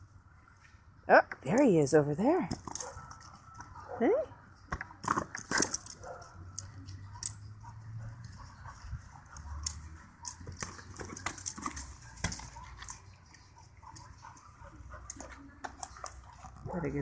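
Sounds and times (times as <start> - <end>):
dog scuffing a ball: 10.4 - 13.0.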